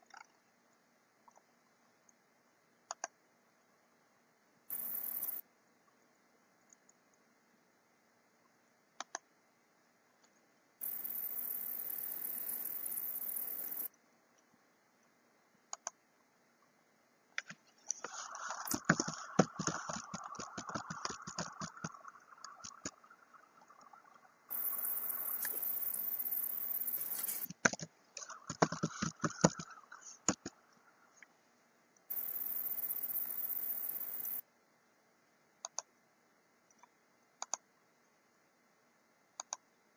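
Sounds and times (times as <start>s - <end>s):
mouse clicks: 2.9s - 3.2s, 9.0s - 9.3s, 15.7s - 16.0s, 17.4s - 30.6s, 35.6s - 35.9s, 36.7s - 37.6s, 39.4s - 39.6s
keyboard typing: 17.4s - 30.6s
steady hiss: 24.5s - 30.5s.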